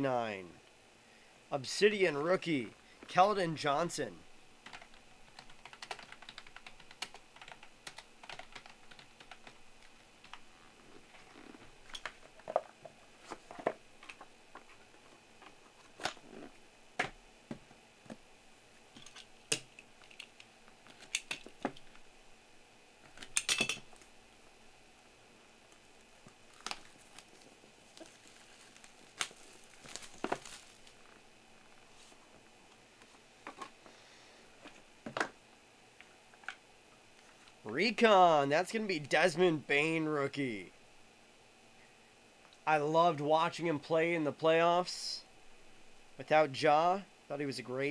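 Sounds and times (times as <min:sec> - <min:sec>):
typing on a computer keyboard: 0:04.6 - 0:09.6
cardboard boxes being handled: 0:26.7 - 0:31.0.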